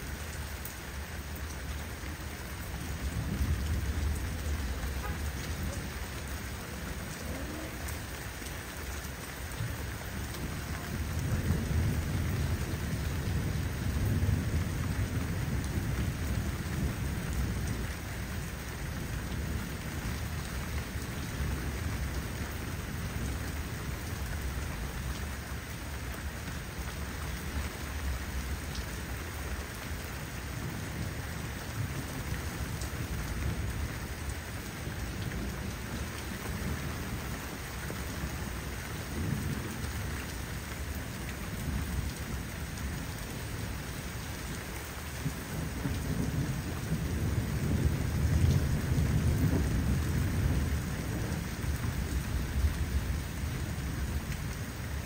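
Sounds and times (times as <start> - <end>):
steady rain: 0.0 - 55.0
rolling thunder: 45.6 - 53.2.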